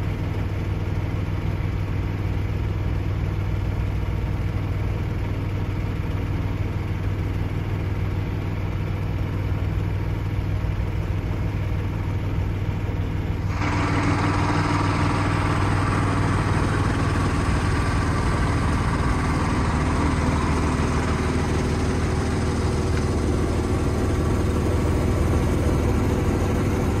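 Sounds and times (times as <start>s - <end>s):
boat engine running: 6.8s - 27.0s.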